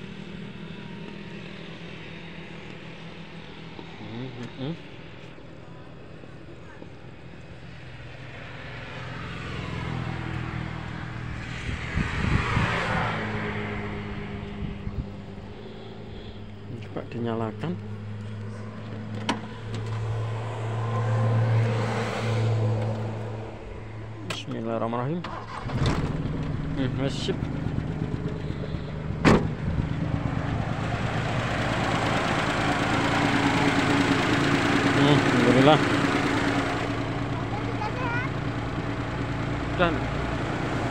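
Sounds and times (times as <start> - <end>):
low engine hum: 0.0 - 40.9
vehicle passing: 6.7 - 40.9
sharp thump: 29.2 - 29.8.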